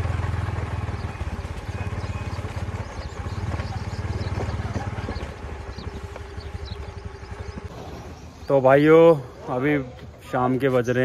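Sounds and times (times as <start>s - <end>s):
wind buffeting microphone: 0.8s - 8.4s.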